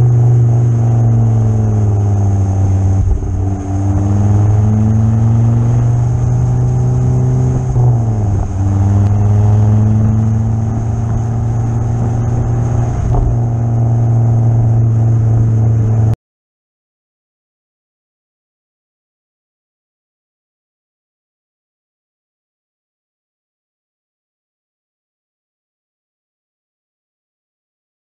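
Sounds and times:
car engine running hard: 0:00.0 - 0:16.2.

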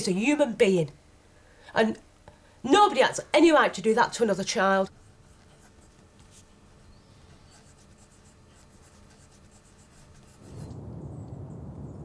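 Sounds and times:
pen scratching on paper: 0:05.0 - 0:10.5.

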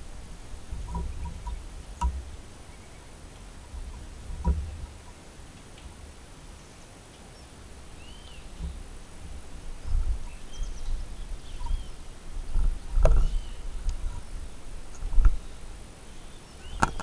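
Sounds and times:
wind buffeting microphone: 0:00.0 - 0:02.6, 0:08.3 - 0:17.0
bird calls: 0:00.7 - 0:05.2, 0:06.5 - 0:17.0.

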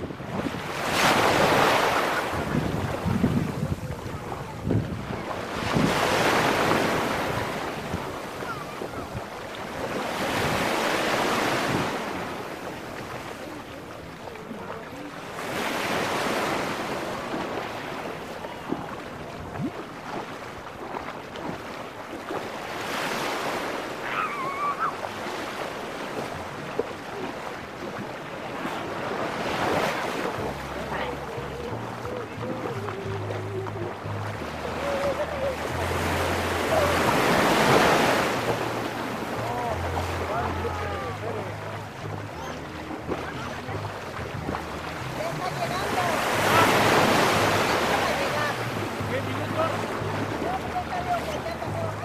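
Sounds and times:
waves washing on sandy shore: 0:00.0 - 0:52.0
faint high-pitched cry: 0:24.0 - 0:25.0.

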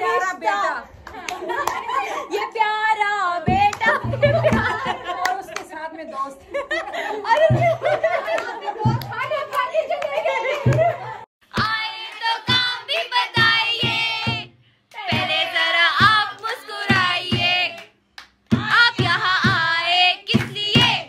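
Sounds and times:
steady hand clapping: 0:07.3 - 0:14.0, 0:14.9 - 0:21.0.

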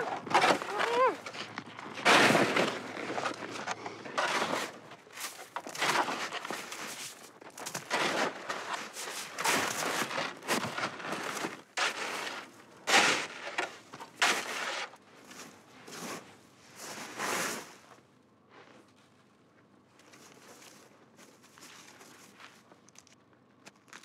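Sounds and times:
snow being scraped: 0:15.8 - 0:17.8.

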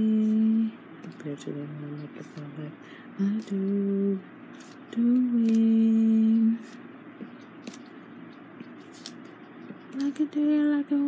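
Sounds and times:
woman humming: 0:00.0 - 0:00.8, 0:04.9 - 0:06.6.

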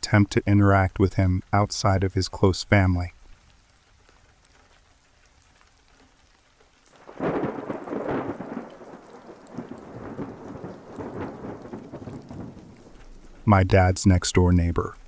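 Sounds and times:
faint rain: 0:00.0 - 0:15.0
thunder rumbling: 0:07.0 - 0:14.1.

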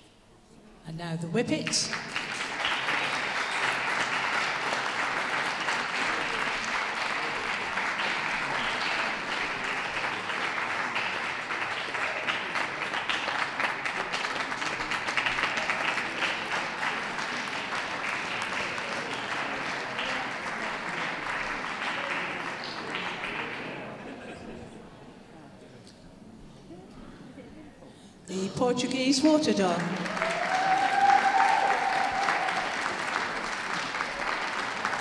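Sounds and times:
audience applauding: 0:01.9 - 0:24.3, 0:29.7 - 0:35.0.

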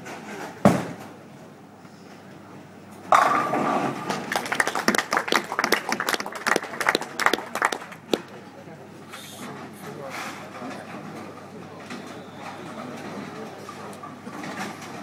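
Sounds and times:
bowling ball thudding on lane: 0:03.1 - 0:04.3
bowling pins crashing: 0:03.1 - 0:04.4.

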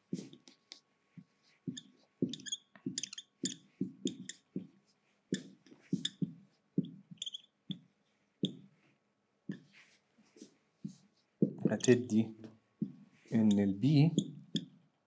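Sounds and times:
marker squeaking on whiteboard: 0:00.2 - 0:08.7, 0:11.6 - 0:12.2, 0:13.3 - 0:14.8.

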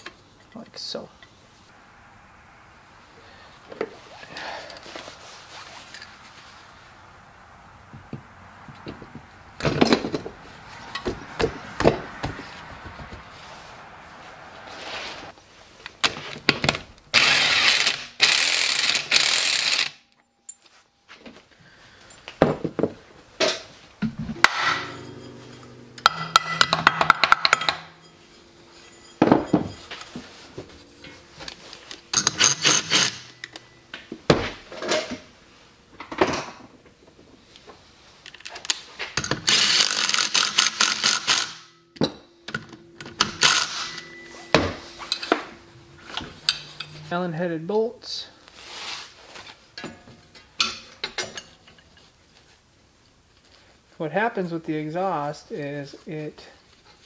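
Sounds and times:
metallic knocks and tool clatter: 0:22.0 - 0:34.0, 0:40.4 - 0:47.2, 0:49.7 - 0:52.1.

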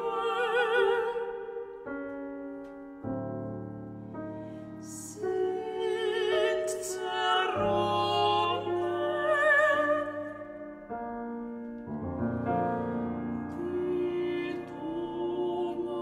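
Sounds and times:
operatic female singing: 0:00.0 - 0:01.8, 0:04.8 - 0:10.6, 0:13.5 - 0:16.0
piano chords: 0:00.0 - 0:16.0.

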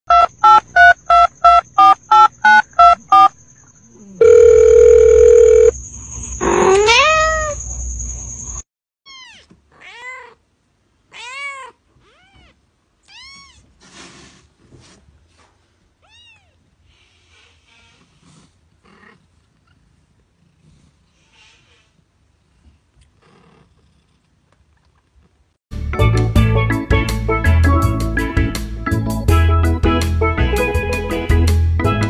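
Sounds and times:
long steady beep: 0:00.1 - 0:03.4, 0:04.2 - 0:05.8
quick electronic beeps: 0:00.1 - 0:03.6.

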